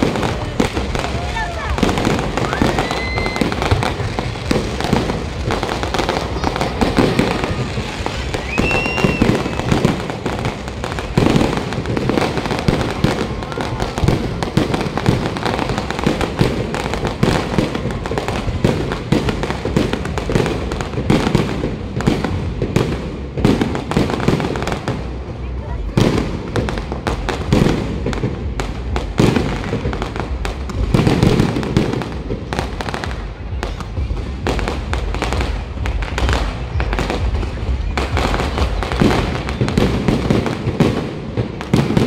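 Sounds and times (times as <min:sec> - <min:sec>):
fireworks bangs and crackles: 0:00.0 - 0:42.0.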